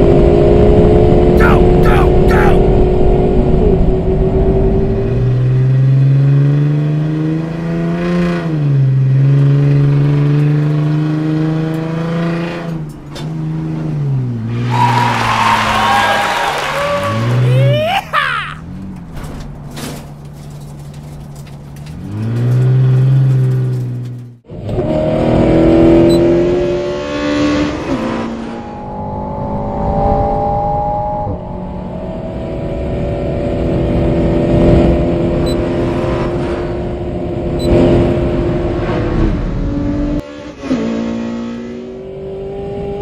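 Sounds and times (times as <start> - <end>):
race car engines running: 12.7 - 24.9.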